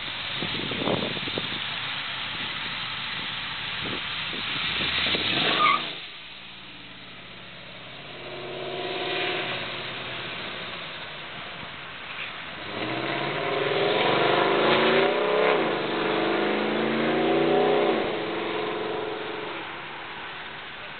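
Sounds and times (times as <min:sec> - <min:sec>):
car engine driving past: 0:06.8 - 0:20.9.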